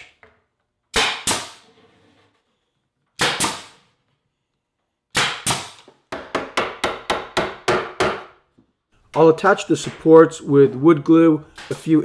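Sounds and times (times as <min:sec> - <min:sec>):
pneumatic nailer firing: 0:00.9 - 0:01.6, 0:03.2 - 0:03.8, 0:05.1 - 0:05.9.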